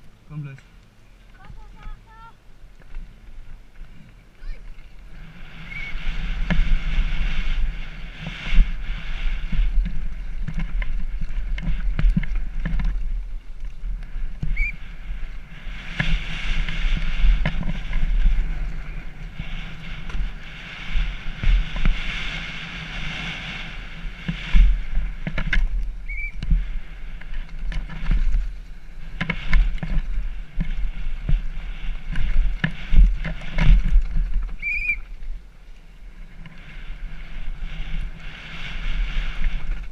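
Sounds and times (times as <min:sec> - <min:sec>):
bike rattling over bumps: 0:00.0 - 0:39.9
wind buffeting microphone: 0:00.0 - 0:39.9.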